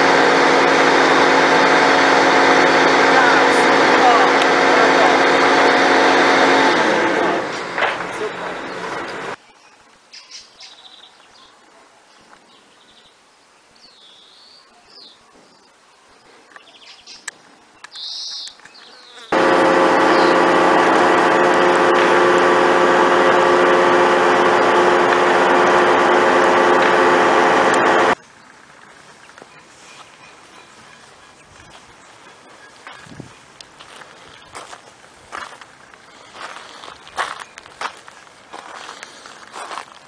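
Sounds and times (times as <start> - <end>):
loud steady buzz: 0.0 - 9.4, 19.3 - 28.2.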